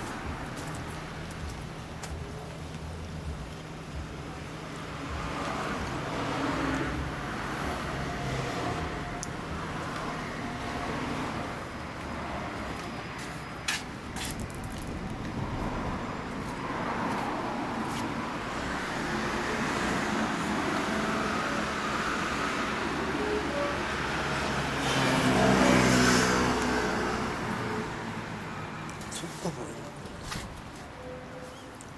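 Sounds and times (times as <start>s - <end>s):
road traffic rumble: 0.0s - 31.9s
louder vehicle passing: 5.1s - 29.1s.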